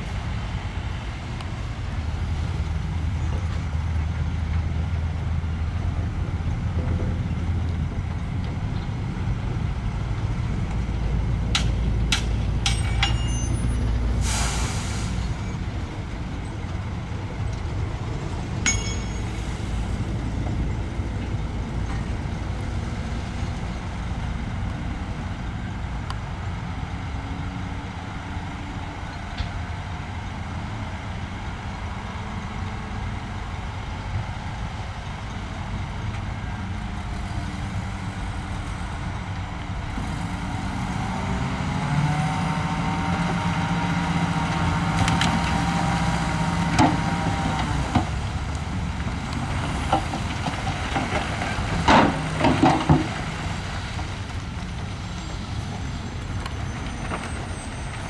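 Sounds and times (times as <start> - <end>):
diesel machinery rumbling: 0.0 - 58.0
sharp metallic clanks: 11.6 - 13.9, 18.6 - 19.7.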